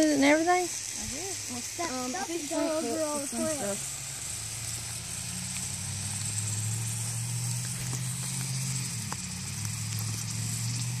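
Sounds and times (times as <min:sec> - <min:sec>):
high-pitched hiss: 0:00.0 - 0:11.0
engine idling hum: 0:00.8 - 0:11.0.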